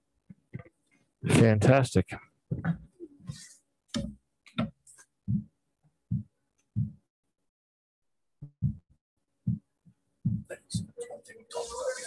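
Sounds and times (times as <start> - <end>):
muffled voices: 10.5 - 12.0.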